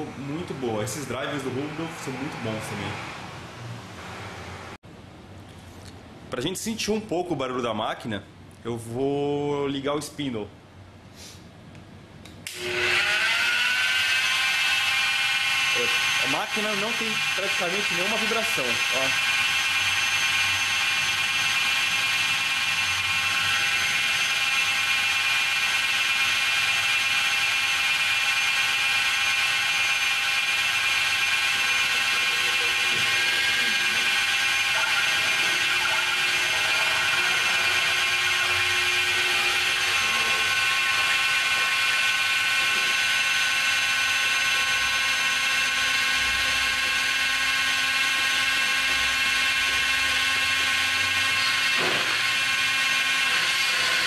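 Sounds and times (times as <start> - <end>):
die grinder whining: 0.0 - 3.3, 12.5 - 54.0.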